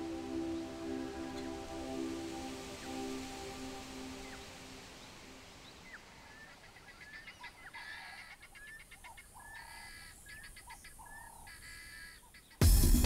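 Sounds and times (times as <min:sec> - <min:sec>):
bird chirps: 0:00.0 - 0:12.6
harsh bird calls: 0:04.1 - 0:12.6.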